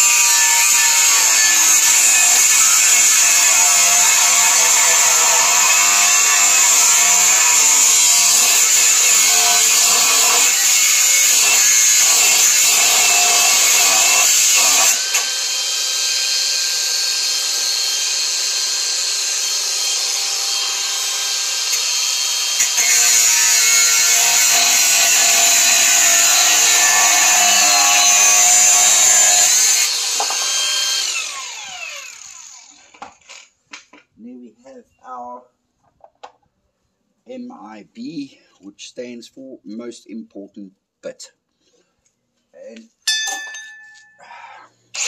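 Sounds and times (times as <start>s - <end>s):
angle grinder cutting steel: 0.0s - 33.5s.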